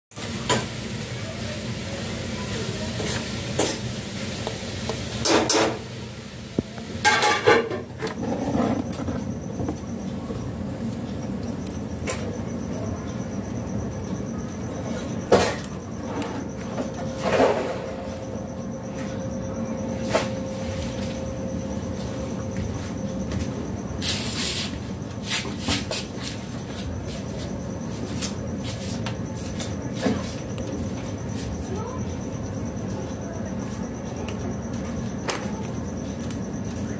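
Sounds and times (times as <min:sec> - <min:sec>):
steady low hum: 0:00.5 - 0:36.9.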